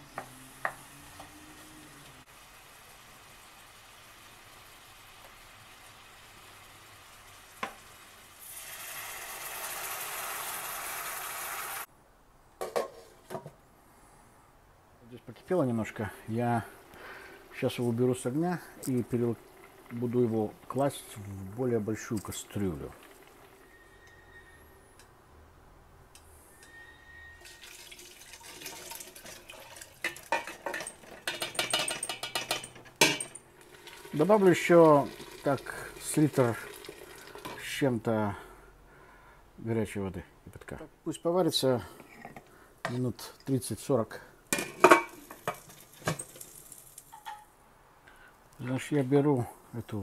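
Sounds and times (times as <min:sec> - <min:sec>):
broth hissing and sizzling in pot: 0:00.0 - 0:11.9, 0:15.9 - 0:24.8, 0:26.5 - 0:37.7, 0:44.5 - 0:47.3
liquid pouring into stockpot: 0:08.4 - 0:10.6, 0:22.0 - 0:23.6, 0:27.4 - 0:31.0, 0:33.6 - 0:37.7
glass pot lid clinking: 0:30.0 - 0:33.4, 0:44.6 - 0:46.4.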